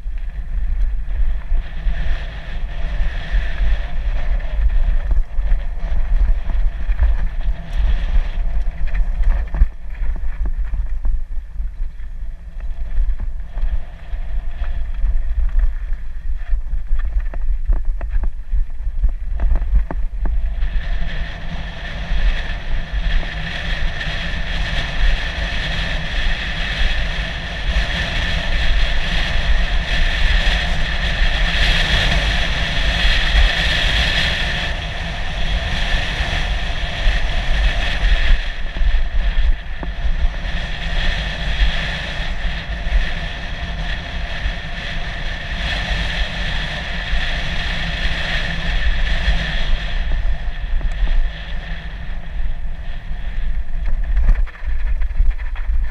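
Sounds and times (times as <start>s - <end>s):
bike tyres rumbling over dirt: 0.0s - 55.9s
wind buffeting microphone: 0.0s - 55.9s.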